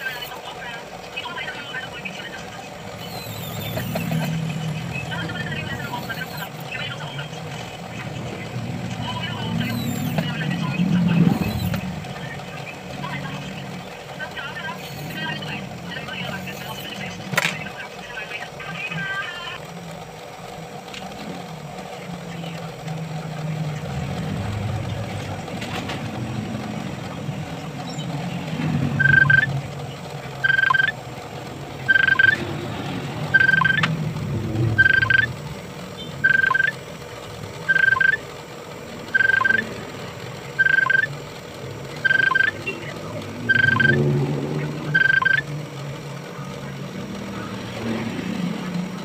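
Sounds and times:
low steady rumble: 0.0s - 49.0s
short high electronic beep: 29.0s - 29.5s, 30.4s - 30.9s, 31.9s - 32.4s, 33.3s - 33.9s, 34.8s - 35.3s, 36.2s - 36.7s, 37.7s - 38.2s, 39.1s - 39.6s, 40.6s - 41.1s, 42.0s - 42.6s, 43.4s - 44.0s, 45.0s - 45.4s.

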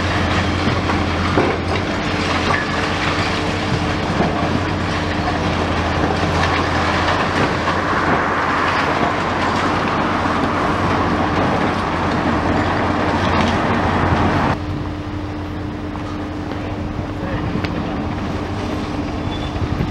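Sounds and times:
concrete crunching and rattling: 0.0s - 14.6s
excavator engine drone: 0.0s - 19.9s
debris clattering: 0.1s - 14.5s.

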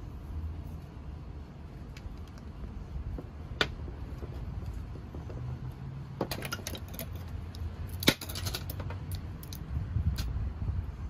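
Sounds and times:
low steady rumble: 0.0s - 11.0s
wire connectors clicking and rattling: 6.2s - 10.3s.

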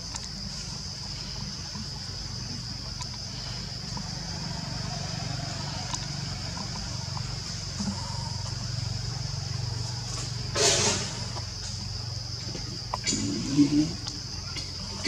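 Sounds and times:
faint ticks: 0.0s - 10.3s.

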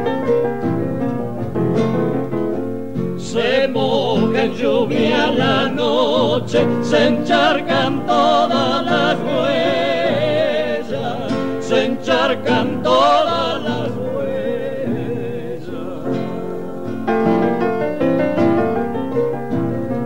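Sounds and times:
piano accompaniment: 0.0s - 20.0s
two men singing with vibrato: 3.2s - 18.1s.

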